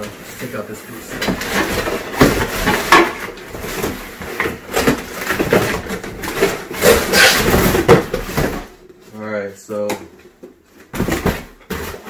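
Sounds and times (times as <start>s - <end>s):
cardboard box being torn open: 6.8s - 8.0s.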